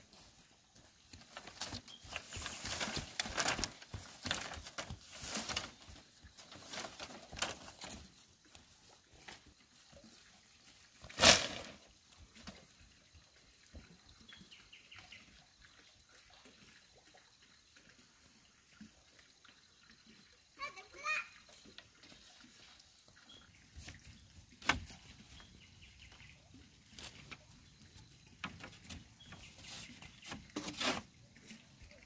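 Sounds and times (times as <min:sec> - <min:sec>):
bamboo slats clattering: 0:01.3 - 0:08.0, 0:11.1 - 0:11.8.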